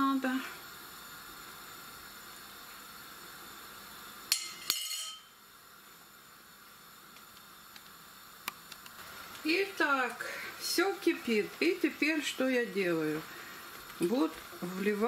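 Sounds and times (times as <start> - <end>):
faint steady hiss: 0.0 - 15.0
metal clinking on pot: 4.3 - 5.3
lighter tick: 7.1 - 10.2.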